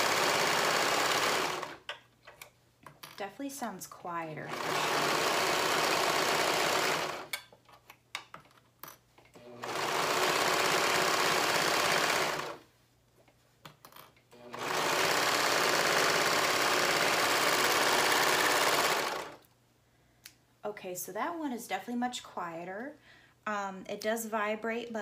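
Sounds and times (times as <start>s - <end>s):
serger stitching: 0.0s - 1.8s, 4.4s - 7.3s, 9.4s - 12.6s, 14.4s - 19.4s.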